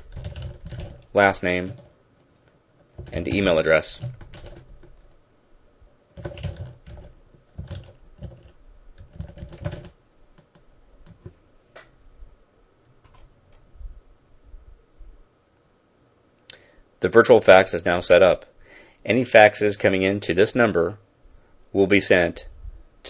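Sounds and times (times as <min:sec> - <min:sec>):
keyboard typing: 0:00.0 - 0:01.9, 0:02.8 - 0:05.2, 0:06.1 - 0:11.9, 0:13.0 - 0:13.6.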